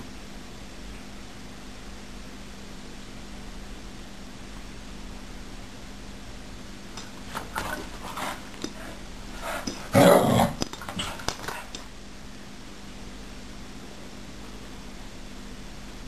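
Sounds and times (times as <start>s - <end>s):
animal growls: 8.2s - 11.3s.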